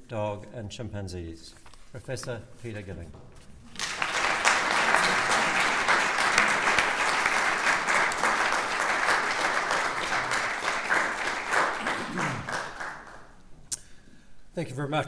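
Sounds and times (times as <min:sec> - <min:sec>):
audience applauding: 0:03.7 - 0:13.4.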